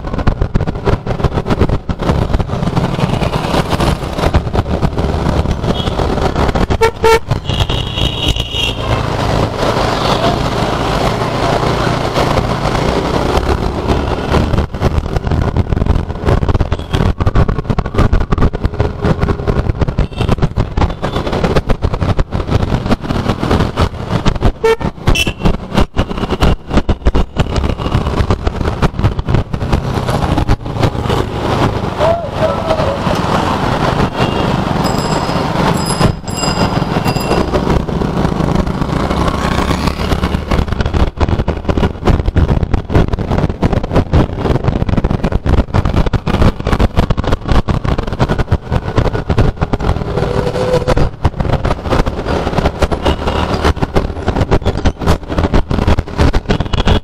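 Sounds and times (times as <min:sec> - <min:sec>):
wind rushing over microphone: 0:00.0 - 0:57.0
vehicle horns beeping: 0:06.8 - 0:08.9, 0:24.6 - 0:25.5.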